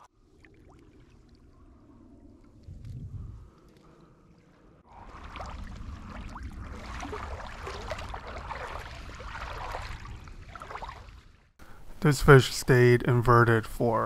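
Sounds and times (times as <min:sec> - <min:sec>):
water lapping and fizzing: 0:00.0 - 0:11.6
steady low rumble: 0:01.2 - 0:10.6
small crackles: 0:02.2 - 0:06.8.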